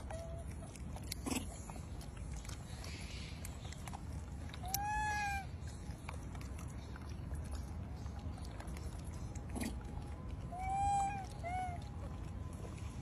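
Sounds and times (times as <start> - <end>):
low background rumble: 0.0 - 13.0
macaque coo call: 4.6 - 5.5, 10.5 - 11.8.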